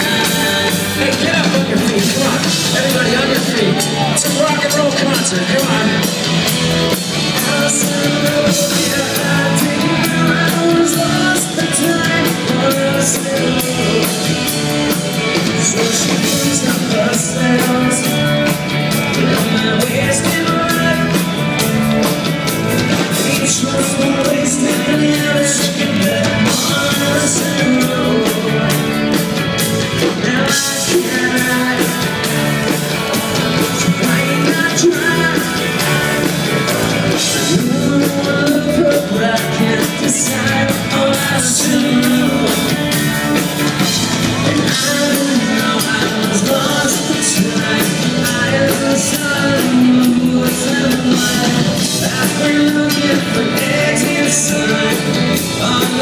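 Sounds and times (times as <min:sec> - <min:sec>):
bass guitar: 0:00.0 - 0:56.0
drums: 0:00.0 - 0:56.0
electric guitars: 0:00.0 - 0:56.0
lead singer singing: 0:00.0 - 0:56.0.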